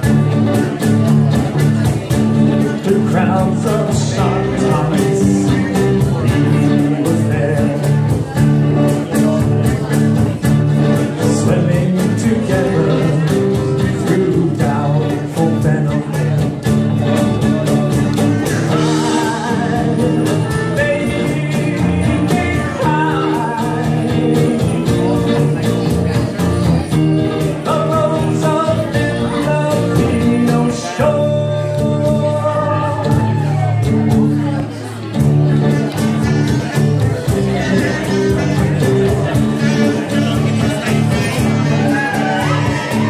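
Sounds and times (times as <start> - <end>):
person singing: 0.0 - 34.6, 35.4 - 43.0
electric bass: 0.0 - 43.0
strummed acoustic guitar: 0.0 - 43.0
clarinet: 35.5 - 43.0.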